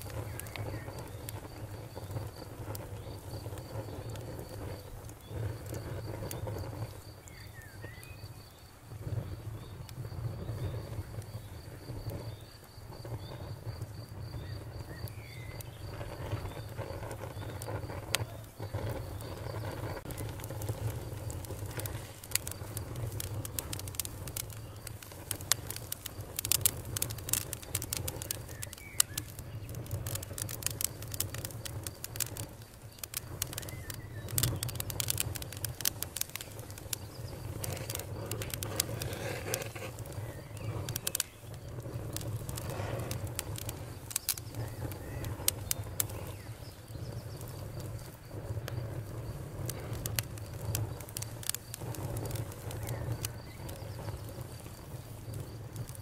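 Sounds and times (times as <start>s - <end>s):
campfire crackling and popping: 0.0s - 56.0s
faint birds: 0.0s - 56.0s.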